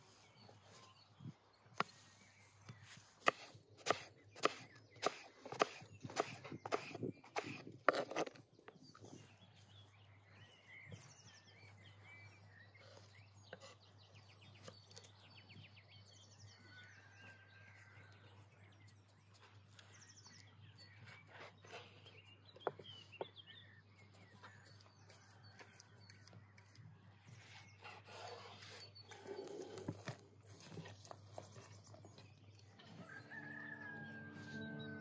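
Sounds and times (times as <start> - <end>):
faint songbirds chirping: 0.0 - 35.0.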